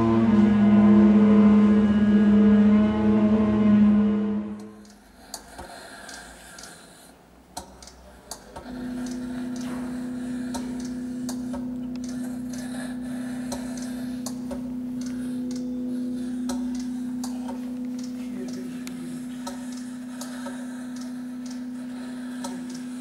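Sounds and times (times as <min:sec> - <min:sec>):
low drone tone: 0:00.0 - 0:06.9, 0:08.3 - 0:23.0
soft ticks and clicks: 0:04.8 - 0:06.9, 0:07.5 - 0:12.7, 0:13.5 - 0:15.7, 0:16.4 - 0:23.0.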